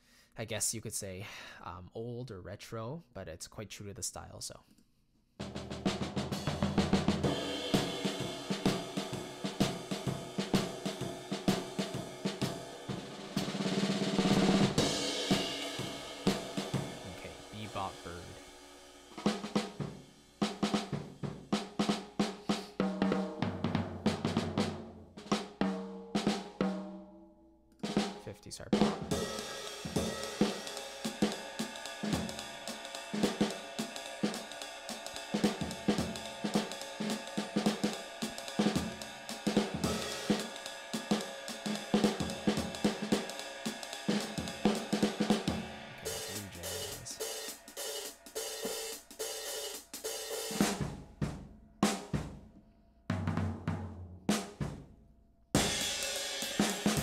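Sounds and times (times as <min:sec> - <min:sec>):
jazz drum kit groove: 0:05.4 - 0:27.0, 0:27.8 - 0:54.9, 0:55.6 - 0:57.0
cymbal wash: 0:29.1 - 0:50.8.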